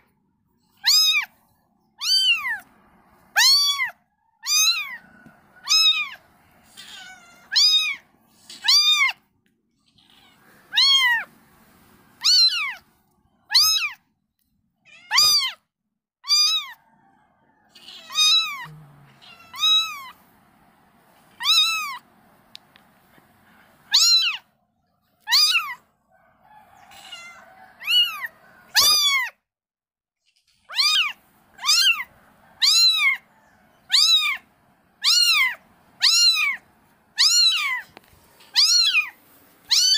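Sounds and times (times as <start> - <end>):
kittens mewing: 0.7 - 1.4, 2.0 - 11.3, 12.2 - 12.9, 13.5 - 14.0, 14.9 - 15.6, 16.2 - 16.8, 17.7 - 20.2, 21.3 - 22.1, 23.6 - 24.6, 25.2 - 25.9, 26.7 - 29.4, 30.4 - 39.9.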